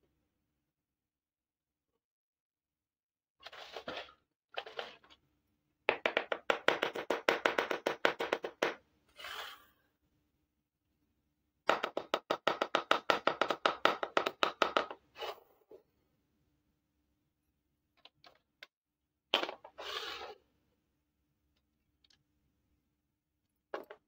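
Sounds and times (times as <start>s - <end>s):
short scrape: 9.1s - 9.8s, 19.8s - 20.4s.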